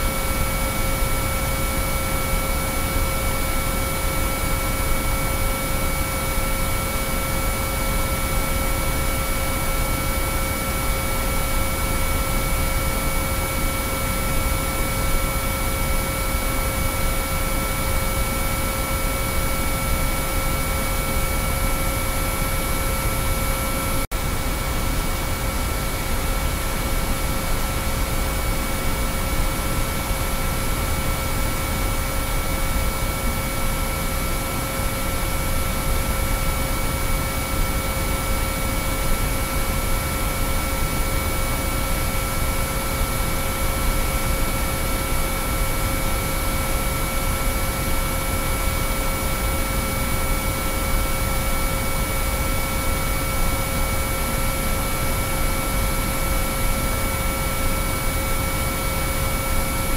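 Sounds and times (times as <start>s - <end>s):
steady sine-wave tones: 0.0s - 59.9s.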